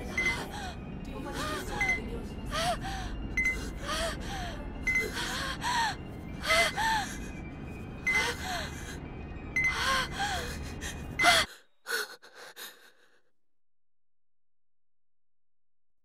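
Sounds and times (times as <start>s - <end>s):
gasping panting breaths: 2.5s - 7.4s, 9.7s - 13.2s.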